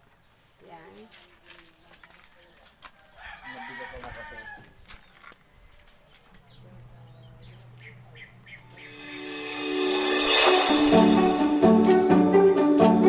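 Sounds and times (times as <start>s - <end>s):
rooster crowing: 3.0s - 4.8s.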